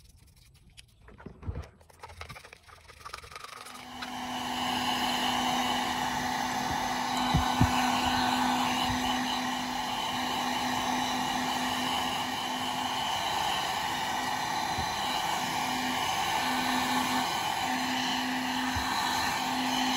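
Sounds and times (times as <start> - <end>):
hair dryer running: 3.6 - 19.9.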